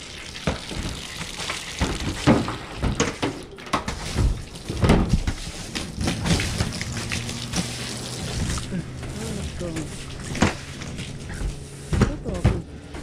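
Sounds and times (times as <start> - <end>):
hose water spraying into gutter: 0.0 - 3.0, 4.4 - 11.8
knocks and bumps: 1.8 - 13.0.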